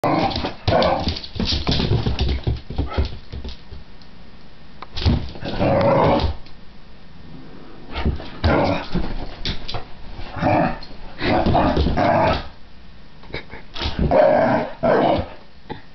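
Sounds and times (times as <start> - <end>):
thumps of dog moving: 0.2 - 3.8, 7.9 - 12.5.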